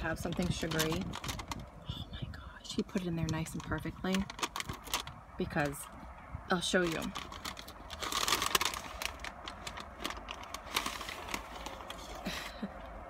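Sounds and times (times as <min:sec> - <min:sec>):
paper bag crinkling: 0:00.0 - 0:01.8, 0:03.2 - 0:05.8, 0:06.7 - 0:12.7.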